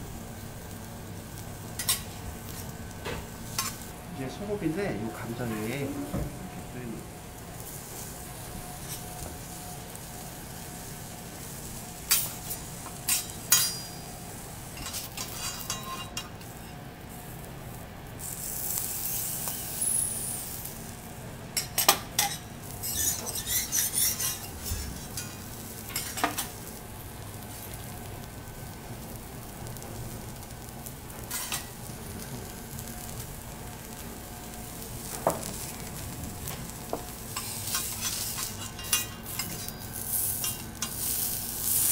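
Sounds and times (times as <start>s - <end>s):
food sizzling on a griddle: 0.0s - 41.9s.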